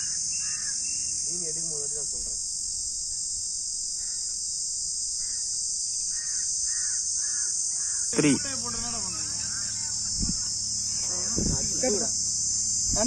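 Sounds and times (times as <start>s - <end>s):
crow cawing: 0.0s - 1.0s, 4.0s - 4.4s, 5.2s - 10.6s
insects droning: 0.0s - 13.0s.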